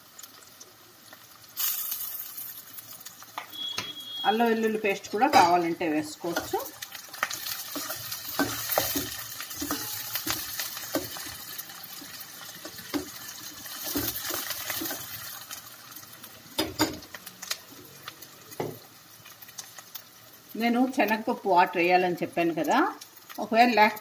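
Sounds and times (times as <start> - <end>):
onions sizzling in hot oil: 0.0 - 24.0
spoon clinking and scraping pot: 7.2 - 11.4.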